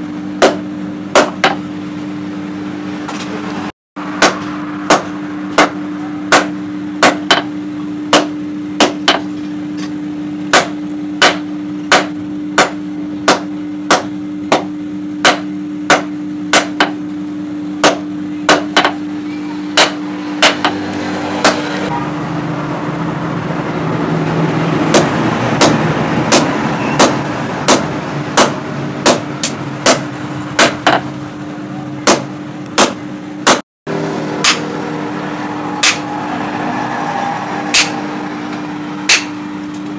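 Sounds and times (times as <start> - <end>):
steady low hum: 0.0 - 39.9
hammer striking steel on anvil: 0.4 - 1.6, 4.1 - 9.5, 10.5 - 17.1, 19.7 - 20.8, 21.4 - 21.8, 24.9 - 31.1, 34.4 - 34.8, 35.8 - 36.2, 37.7 - 38.0, 39.0 - 39.4
rushing noise: 33.9 - 39.7.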